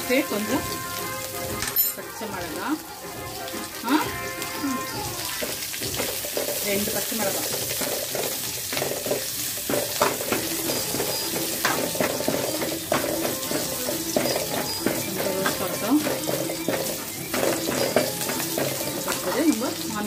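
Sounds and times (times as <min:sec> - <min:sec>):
chillies sizzling in hot oil: 0:00.0 - 0:20.0
metal spatula scraping pan: 0:00.0 - 0:20.0.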